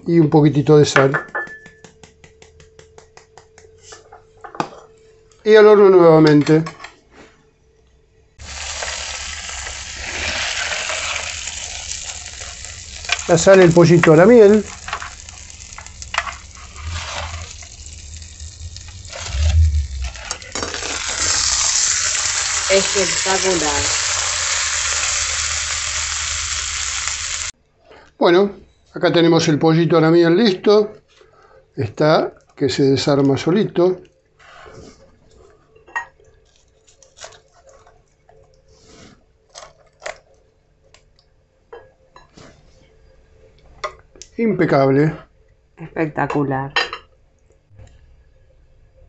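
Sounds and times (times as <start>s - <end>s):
knife tapping metal pan: 1.0s - 3.6s
steady sizzle: 8.4s - 27.6s
meat tearing: 36.4s - 37.9s.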